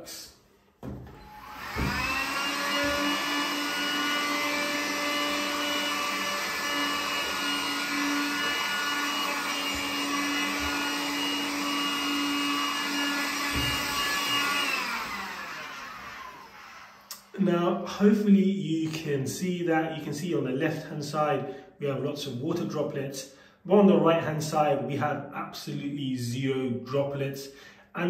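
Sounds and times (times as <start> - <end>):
window vacuum motor whine: 1.1 - 17.1.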